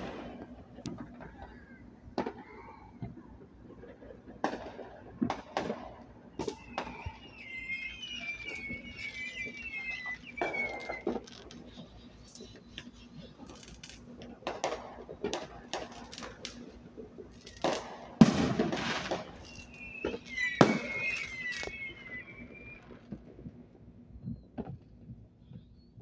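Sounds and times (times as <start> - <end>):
fireworks popping and crackling: 0.0 - 25.7
firework bang: 4.3 - 23.4.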